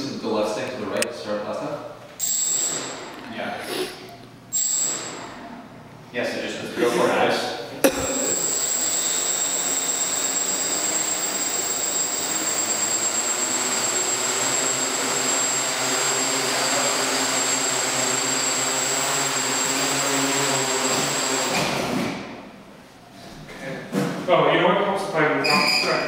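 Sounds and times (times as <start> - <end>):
drone propellers rushing: 8.0 - 21.5
electric motor whine: 8.2 - 21.6.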